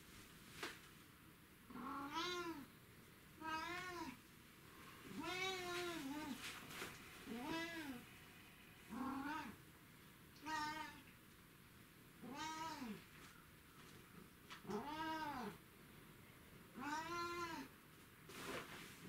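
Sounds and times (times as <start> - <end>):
cat meowing: 1.7 - 2.7, 3.4 - 4.2, 5.2 - 6.4, 8.9 - 9.6, 10.4 - 11.0, 12.2 - 13.0, 14.6 - 15.6, 16.8 - 17.7.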